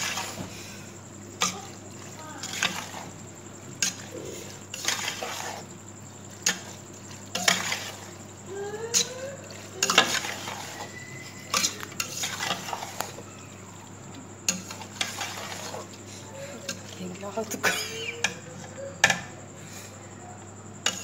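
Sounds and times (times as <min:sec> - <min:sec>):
spatula scraping a metal pot: 0:02.4 - 0:03.2, 0:03.8 - 0:05.8, 0:06.4 - 0:08.2, 0:08.9 - 0:13.3, 0:14.4 - 0:18.5.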